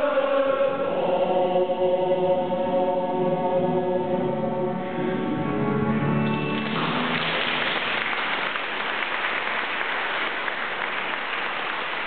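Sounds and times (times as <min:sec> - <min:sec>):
men's choir singing: 0:00.0 - 0:05.5
audience applauding: 0:06.5 - 0:12.0.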